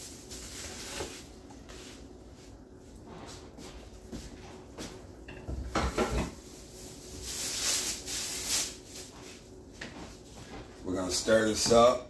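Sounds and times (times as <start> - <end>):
high rustling hiss: 6.6 - 9.2.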